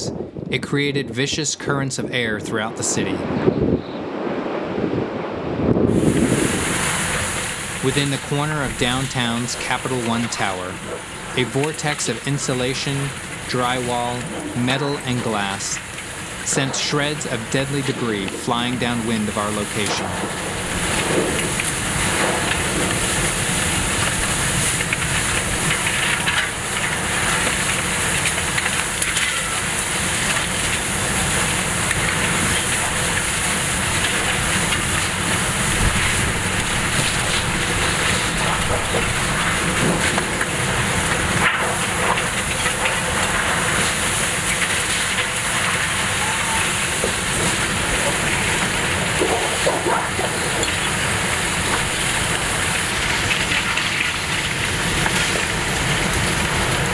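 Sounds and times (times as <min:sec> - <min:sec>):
hurricane winds rushing: 0:00.0 - 0:56.9.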